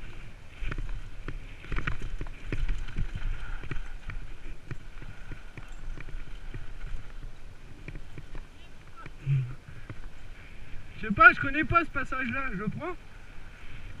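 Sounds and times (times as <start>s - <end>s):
tyres crunching on loose stones: 0.0s - 10.2s
bike knocking and rattling: 0.0s - 10.3s.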